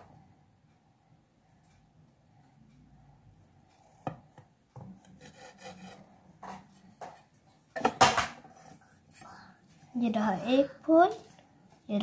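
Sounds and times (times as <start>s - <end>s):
knife scraping on metal plate: 5.0s - 6.1s.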